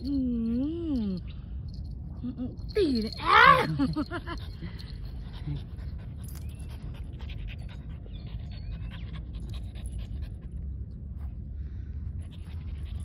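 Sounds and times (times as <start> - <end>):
dogs panting: 3.9 - 10.8.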